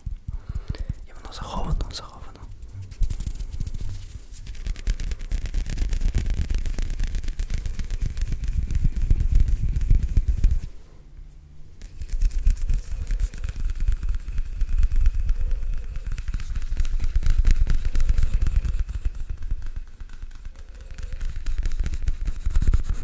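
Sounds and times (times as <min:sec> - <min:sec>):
hands rubbing at microphone: 0:00.0 - 0:10.8, 0:11.7 - 0:23.0
low microphone rumble: 0:06.0 - 0:13.1.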